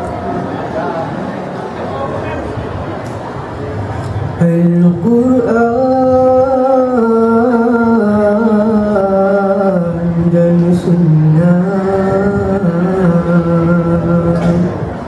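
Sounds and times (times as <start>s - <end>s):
men singing through microphones: 4.4s - 15.0s.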